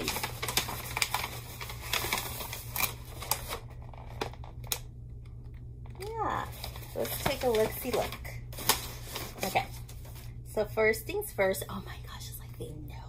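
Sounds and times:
wrapping paper rustling and crinkling: 0.0s - 4.8s, 6.0s - 10.4s.

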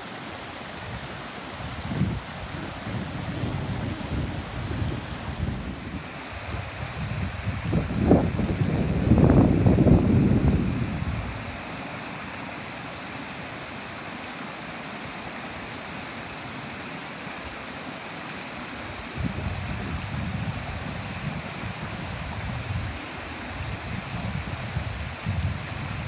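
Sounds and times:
wind buffeting microphone: 1.7s - 12.6s.

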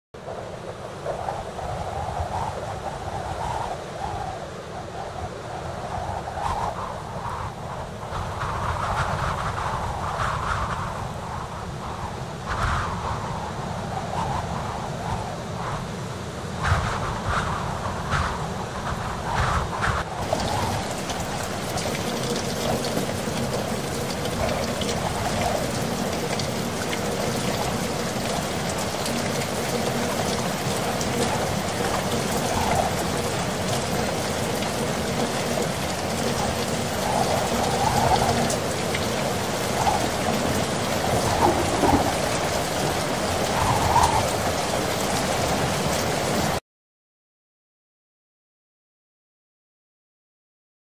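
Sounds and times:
heavy rain downpour: 19.9s - 46.6s.

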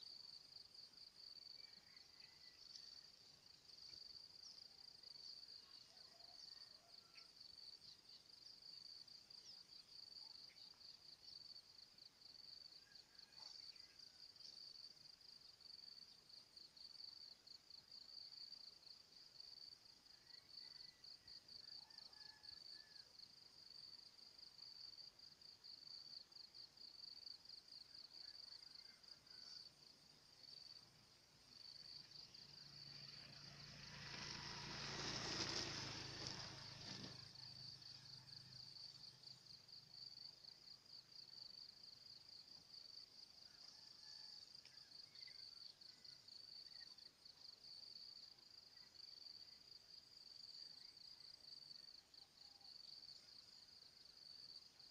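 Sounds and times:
insects trilling: 27.2s - 41.7s.

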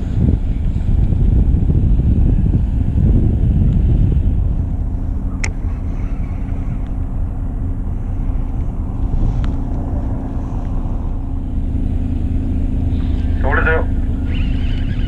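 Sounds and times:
boat engine humming: 0.0s - 15.0s.

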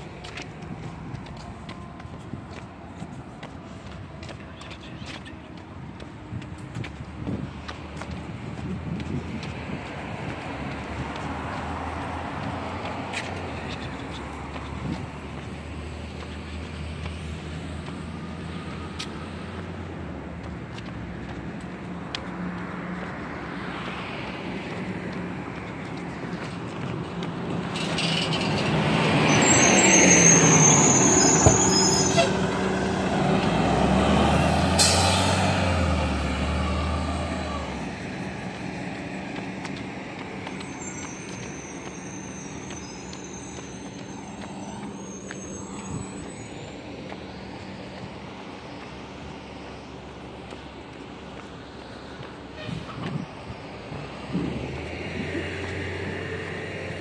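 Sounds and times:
bus engine rumble: 0.0s - 57.0s
road traffic hum: 0.0s - 57.0s
car passing by: 20.9s - 57.0s.

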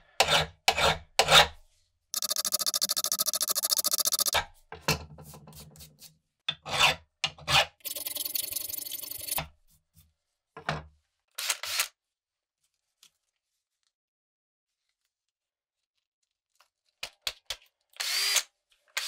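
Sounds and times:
hand file rasping on steel: 0.2s - 1.6s.

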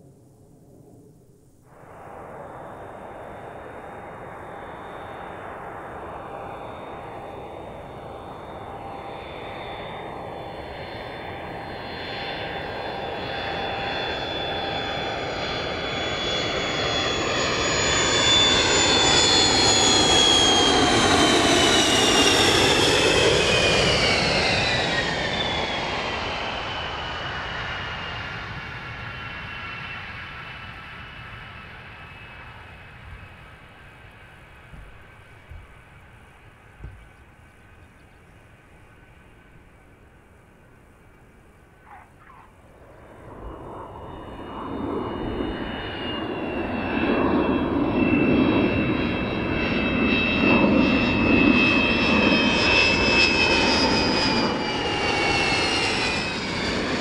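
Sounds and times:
jet engine whine: 0.0s - 57.0s.

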